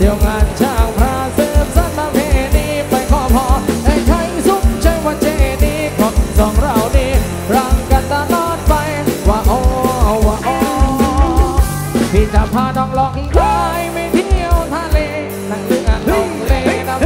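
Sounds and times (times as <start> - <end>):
loud live band music: 0.0 - 17.0
fast kick drum beat: 9.8 - 12.6.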